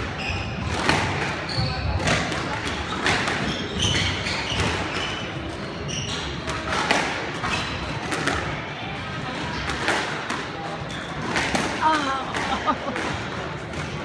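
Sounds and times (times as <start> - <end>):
murmur of voices: 0.0 - 14.0
shoes squeaking on wooden floor: 2.9 - 5.2.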